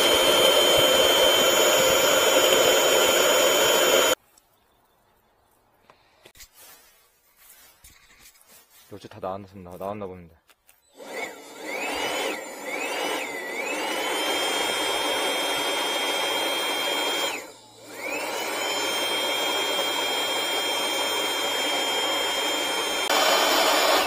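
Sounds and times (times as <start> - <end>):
electric blower whining: 0.0 - 4.2, 10.8 - 24.0.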